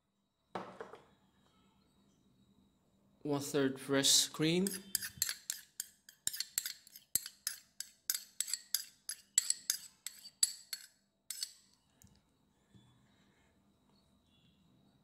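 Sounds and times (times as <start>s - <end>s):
metal spoon scraping plastic cup: 4.6s - 11.6s.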